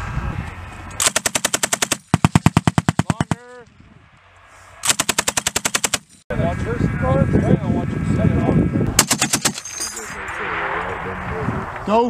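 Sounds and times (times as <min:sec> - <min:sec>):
machine gun automatic fire: 0:01.0 - 0:03.4, 0:04.8 - 0:06.2, 0:09.0 - 0:09.7.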